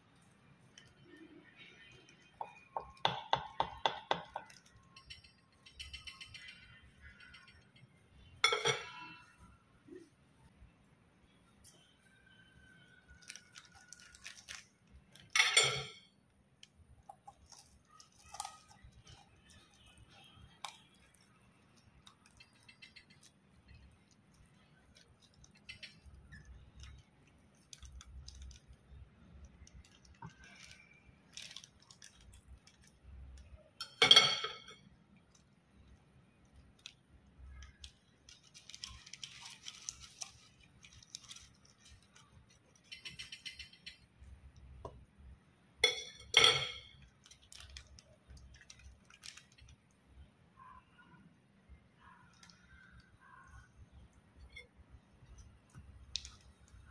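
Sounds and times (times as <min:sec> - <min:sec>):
plastic wrapping crinkling: 0:00.1 - 0:03.2, 0:03.8 - 0:05.4, 0:11.7 - 0:15.4, 0:16.1 - 0:33.7, 0:35.0 - 0:44.4, 0:47.0 - 0:50.0, 0:52.3 - 0:53.9, 0:55.2 - 0:56.9
cutlery clinking and scraping: 0:08.4 - 0:09.2, 0:15.3 - 0:16.0, 0:33.8 - 0:34.8, 0:45.8 - 0:47.0.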